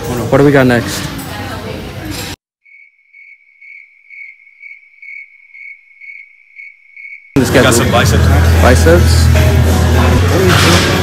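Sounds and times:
crickets chirping: 0:02.6 - 0:07.4
music: 0:07.4 - 0:11.0.

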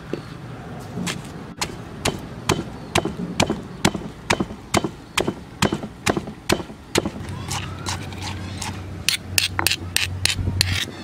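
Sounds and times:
stone pestle pounding in mortar: 0:01.6 - 0:07.2.

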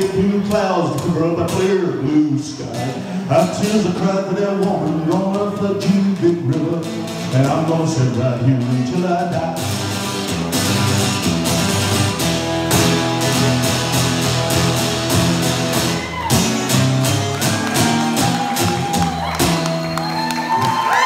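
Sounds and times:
acoustic guitar strumming: 0:00.0 - 0:20.8
audience whooping and cheering: 0:15.6 - 0:21.0.

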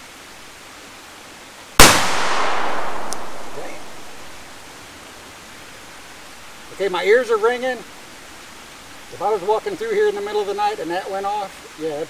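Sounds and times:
loud sharp bang: 0:01.8 - 0:04.7.

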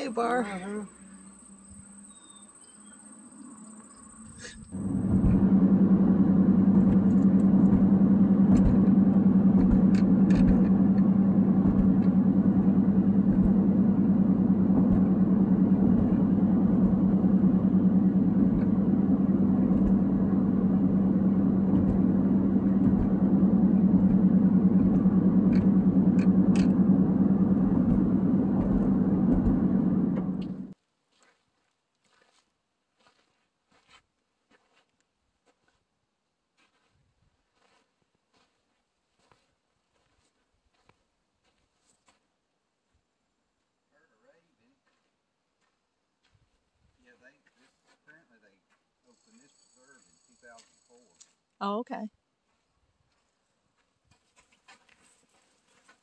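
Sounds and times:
road and engine hum: 0:00.0 - 0:30.8.

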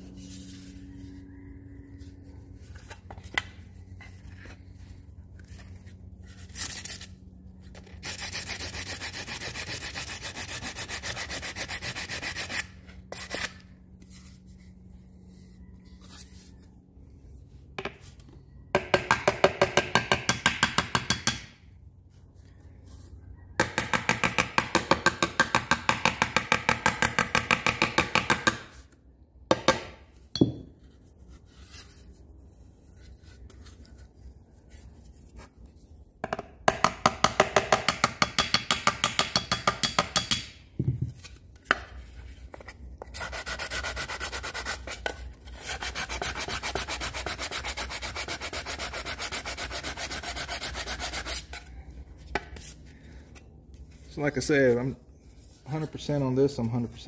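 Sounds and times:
sandpaper rubbing on metal: 0:07.8 - 0:13.6, 0:43.1 - 0:51.6.

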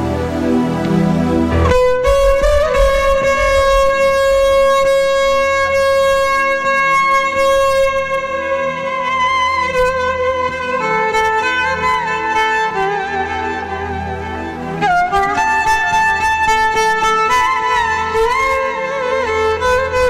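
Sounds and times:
repeated low backing notes: 0:00.3 - 0:05.8
violin holding long note: 0:01.3 - 0:06.4.

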